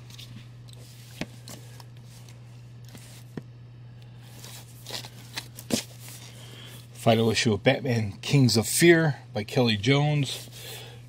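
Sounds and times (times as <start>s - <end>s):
low steady hum: 0.0s - 11.0s
paper rustling and sliding: 0.1s - 3.4s.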